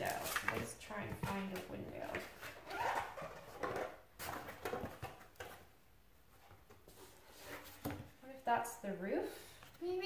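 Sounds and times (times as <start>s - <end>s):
cardboard rustling and scraping: 0.0s - 5.7s, 6.4s - 8.2s.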